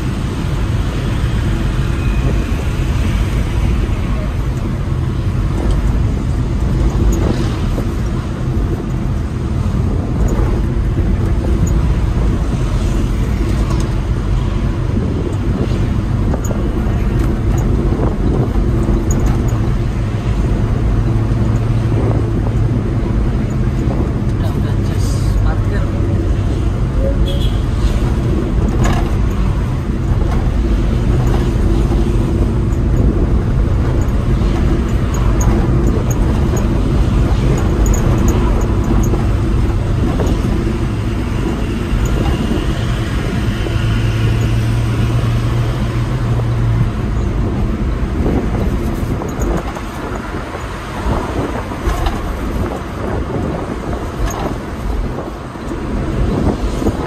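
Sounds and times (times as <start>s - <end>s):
engine drone inside vehicle: 0.0s - 57.0s.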